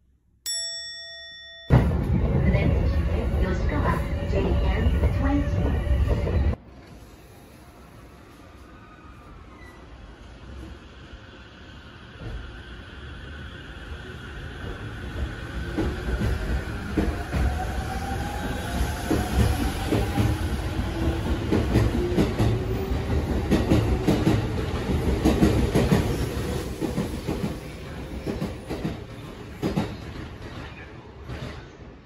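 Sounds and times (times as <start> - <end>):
train wheels clacking: 21.2 - 31.6.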